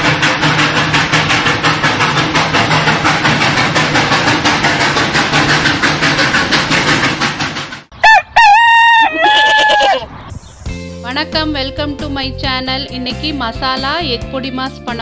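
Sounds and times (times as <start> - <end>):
steam train chugging: 0.0 - 9.3, 11.1 - 15.0
rooster crowing: 8.0 - 10.1.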